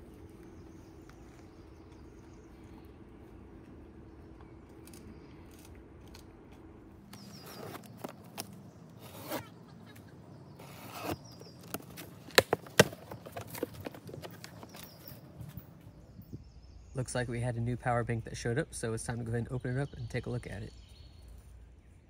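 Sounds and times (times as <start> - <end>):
knife slitting packing tape: 10.6 - 11.2.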